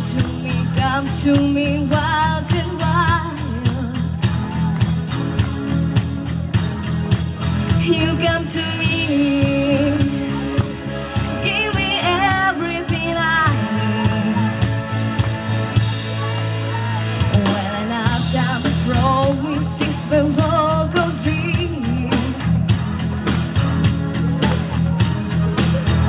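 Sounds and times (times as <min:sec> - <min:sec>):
woman singing into microphone: 0:00.0 - 0:04.4, 0:07.8 - 0:10.6, 0:11.4 - 0:14.9, 0:17.3 - 0:22.4
backing music with bass line: 0:00.0 - 0:26.0.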